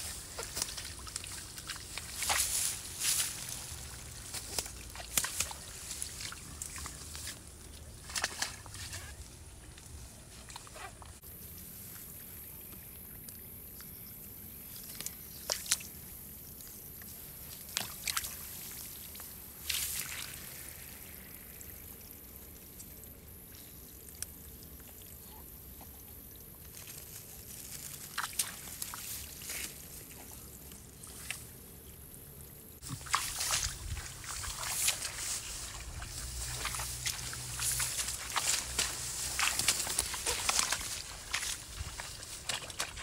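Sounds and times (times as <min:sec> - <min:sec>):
water splashes: 0:00.0 - 0:09.3, 0:17.5 - 0:23.0, 0:27.7 - 0:30.4, 0:32.8 - 0:43.0
water sloshing and pouring: 0:17.6 - 0:22.8, 0:32.8 - 0:43.0.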